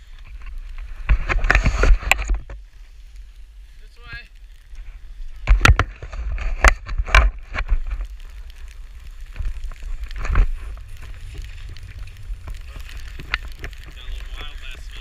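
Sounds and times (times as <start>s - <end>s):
wind buffeting microphone: 5.2s - 15.0s
skis running over snow: 7.4s - 15.0s.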